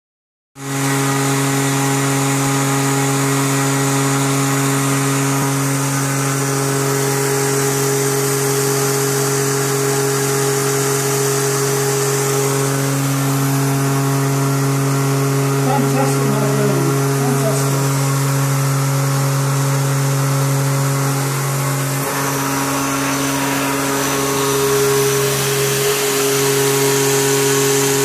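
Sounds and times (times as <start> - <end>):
milling machine pitched hum: 0.6 - 28.0.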